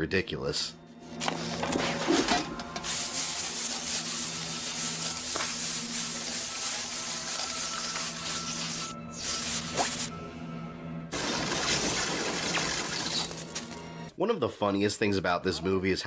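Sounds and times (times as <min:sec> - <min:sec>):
background music: 0:00.0 - 0:16.0
spray paint hissing: 0:02.8 - 0:10.1.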